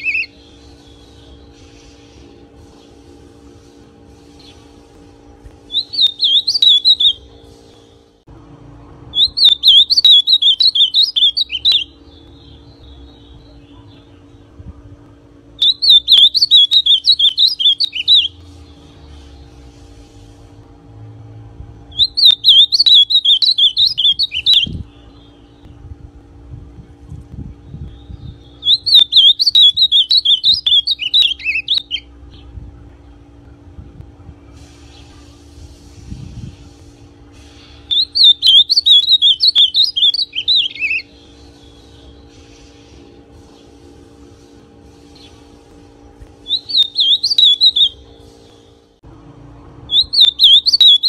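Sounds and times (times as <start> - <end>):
bird singing warbled phrases: 0.0 - 1.6, 5.7 - 7.3, 9.1 - 14.6, 15.6 - 19.6, 21.9 - 25.9, 27.6 - 33.2, 37.6 - 42.3, 46.4 - 48.8, 49.9 - 51.0
steady low hum: 0.0 - 51.0.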